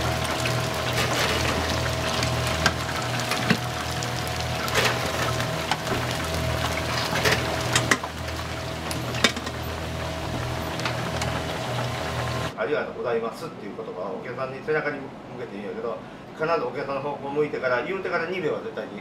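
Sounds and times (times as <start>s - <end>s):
chicken sizzling in hot oil: 0.0s - 12.6s.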